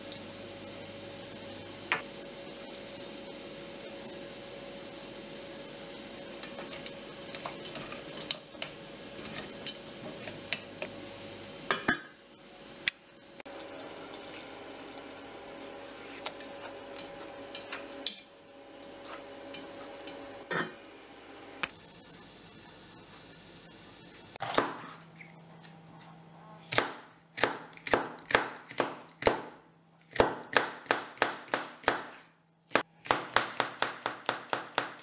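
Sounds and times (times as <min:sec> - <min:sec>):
food sizzling in a pot: 0:00.0 - 0:24.4.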